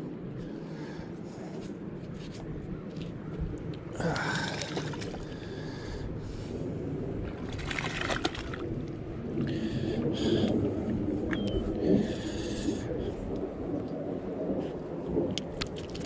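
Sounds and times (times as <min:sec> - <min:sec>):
fish splashing in water: 0:07.3 - 0:08.7.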